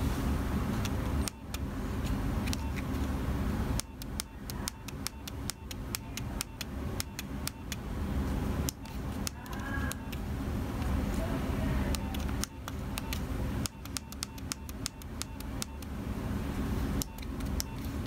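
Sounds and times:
phone keys clicking: 0.8s - 3.1s, 3.8s - 7.8s, 11.9s - 15.9s, 17.0s - 18.0s.

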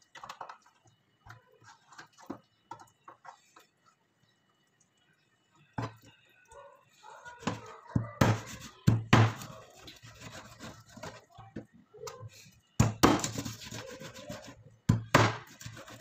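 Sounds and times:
knife scraping through meat: 9.4s - 11.2s, 13.2s - 14.6s, 15.4s - 16.0s.

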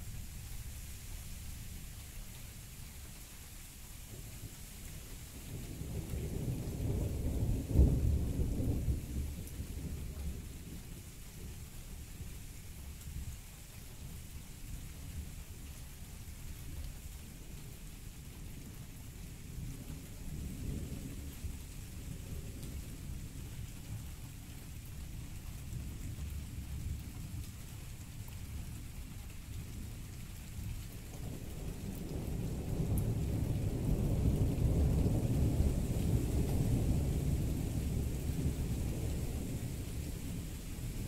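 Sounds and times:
rain falling: 0.0s - 41.0s
rolling thunder rumble: 5.5s - 10.8s, 31.2s - 41.0s.

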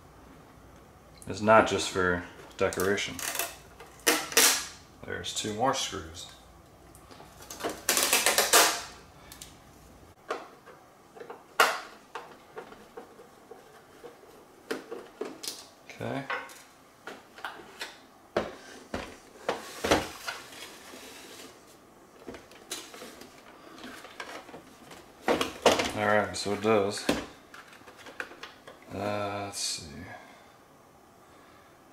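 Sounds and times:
plastic parts clattering: 2.5s - 4.7s, 7.2s - 9.0s, 22.2s - 28.8s.

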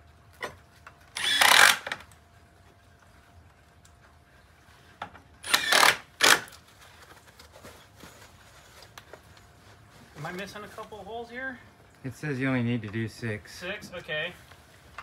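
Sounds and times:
cordless driver running: 1.2s - 2.0s, 5.4s - 6.5s.

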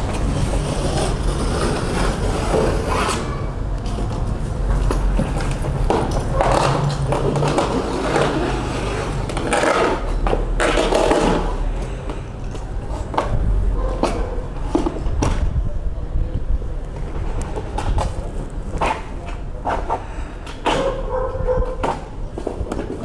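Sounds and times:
scraping sounds: 0.0s - 15.5s
street rumble: 0.0s - 23.0s.

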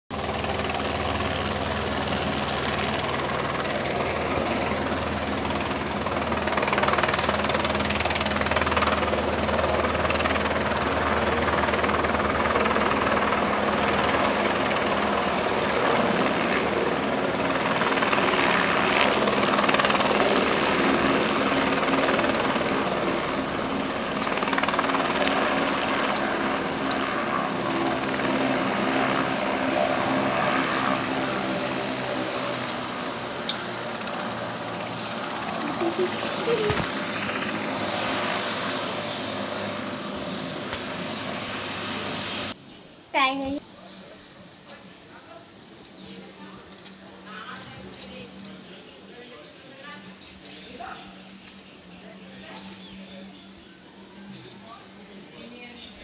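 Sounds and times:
helicopter rotor and engine: 0.1s - 56.0s.

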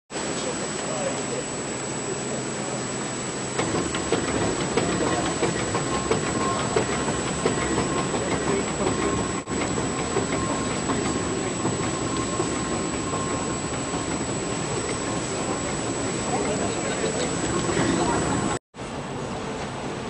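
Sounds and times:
steam engine churning with knock: 3.5s - 18.6s.

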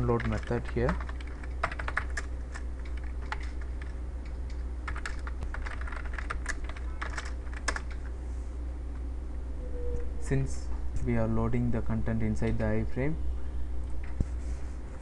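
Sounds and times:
low hum: 0.0s - 15.0s
keyboard typing clicks: 0.1s - 8.0s.

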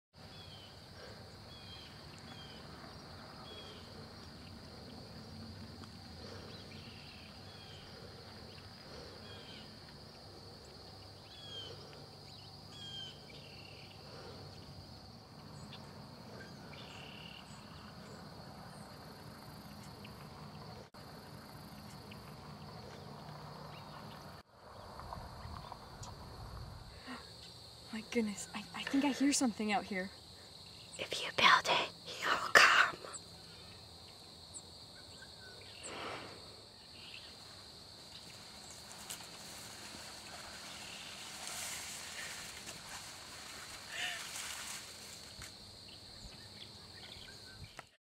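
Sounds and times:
insect chirps: 0.2s - 48.0s
insects droning: 0.2s - 48.0s.

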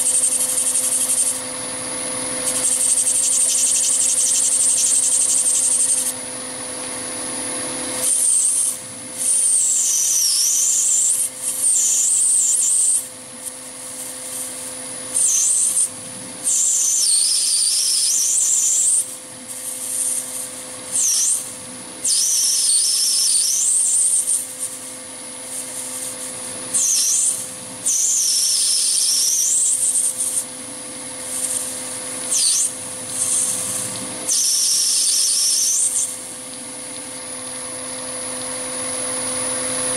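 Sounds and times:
cutting tool squealing on brass: 0.0s - 1.5s, 2.3s - 6.2s, 7.9s - 36.4s
lathe motor whining: 0.0s - 39.9s.

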